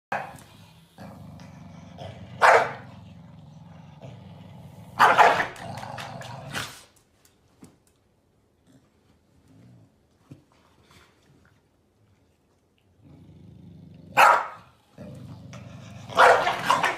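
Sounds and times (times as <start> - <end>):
dogs growling: 0.2 - 6.8, 12.8 - 16.9
dogs barking: 2.4 - 2.8, 5.0 - 5.6, 14.2 - 14.7, 16.1 - 16.9.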